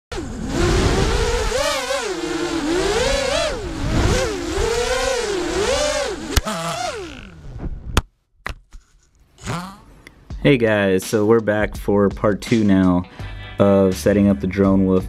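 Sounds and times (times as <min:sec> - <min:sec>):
drone motors whining: 0:00.1 - 0:07.9.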